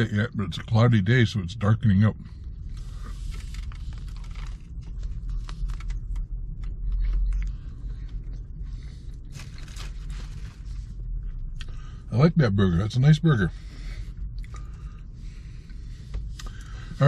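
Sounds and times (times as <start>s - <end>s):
car cabin hum: 0.0s - 17.0s
man chewing: 2.5s - 11.7s, 14.0s - 14.8s
clicks and rustles of food handling: 3.2s - 10.8s.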